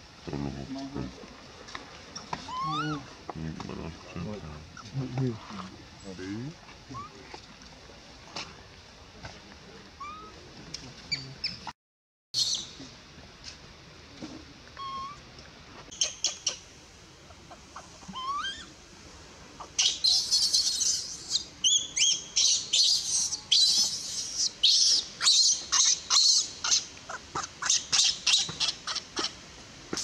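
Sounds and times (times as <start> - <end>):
infant monkey screaming: 2.4 - 3.1, 7.0 - 7.2, 10.0 - 10.4, 14.8 - 15.2, 17.8 - 18.7, 19.6 - 29.4.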